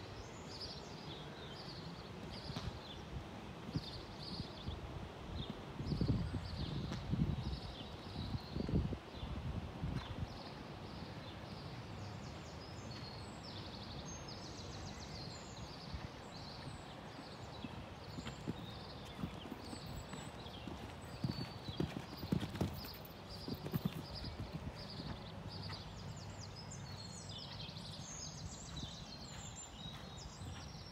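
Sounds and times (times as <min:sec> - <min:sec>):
horse hoofbeats on sand: 0:17.6 - 0:30.9.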